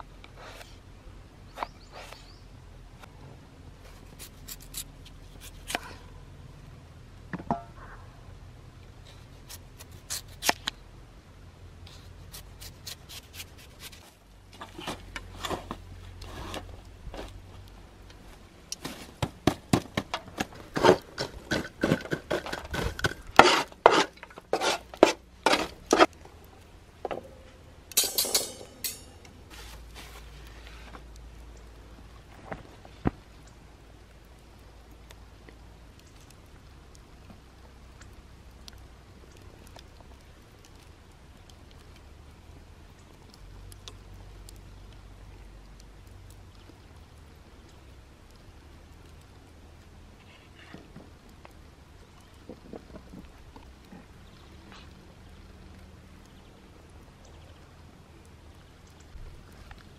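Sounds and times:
knife cutting potato on wood: 12.3s - 14.1s
metal tongs and grill rack clinking: 27.9s - 29.3s.

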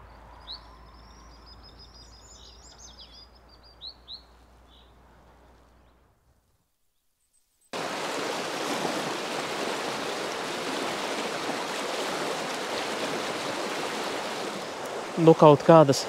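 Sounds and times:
river water rushing: 7.8s - 16.0s.

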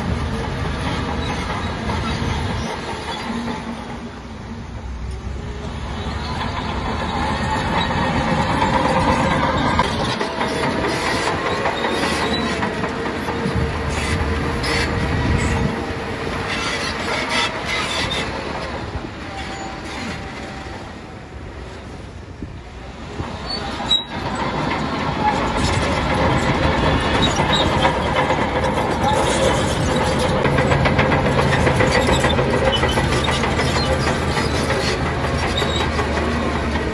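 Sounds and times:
diesel engine under load: 0.0s - 36.9s
steel tracks clanking: 0.0s - 36.9s
steady squeal: 0.4s - 4.8s, 5.5s - 21.3s, 23.2s - 36.9s.

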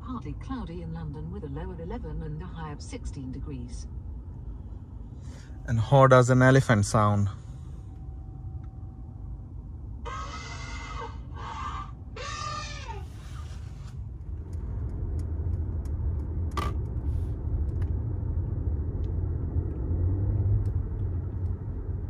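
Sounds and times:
road and tyre noise inside car: 0.0s - 22.0s
elephant trumpeting through speakers: 10.0s - 13.6s.

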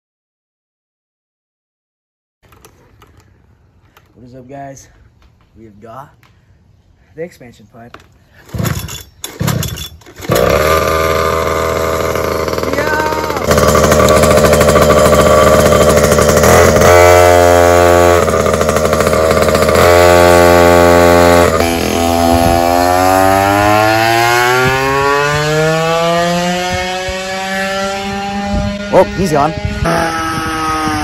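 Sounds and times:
two-stroke scooter engine revving: 8.5s - 31.0s.

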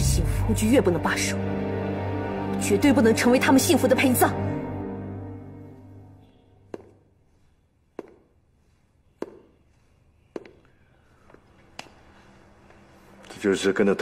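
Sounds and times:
footsteps on hard floor: 6.6s - 11.7s.

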